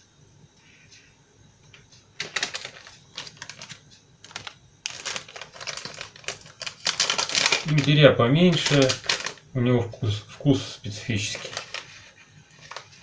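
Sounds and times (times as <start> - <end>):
foil packet crinkling: 2.2 - 9.6, 10.9 - 13.0.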